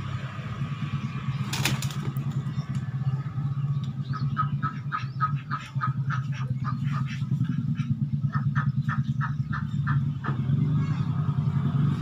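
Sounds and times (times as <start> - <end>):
rooster flapping wings: 1.4 - 2.4
poultry squawking: 4.0 - 11.2.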